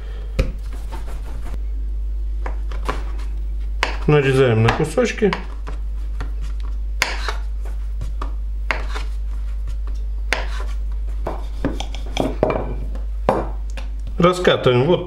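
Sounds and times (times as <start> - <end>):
steady low hum: 0.0 - 15.0
knife chopping on cutting board: 3.8 - 6.3, 7.0 - 7.4, 8.1 - 9.1, 10.3 - 12.6.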